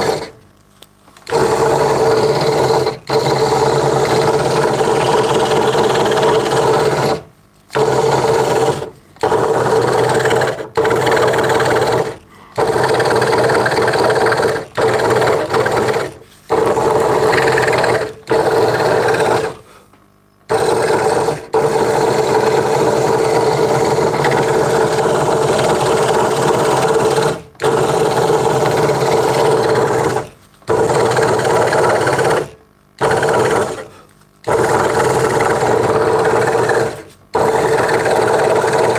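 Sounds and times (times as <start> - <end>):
scroll saw cutting wood: 0.0 - 0.4, 1.2 - 19.7, 20.5 - 38.9.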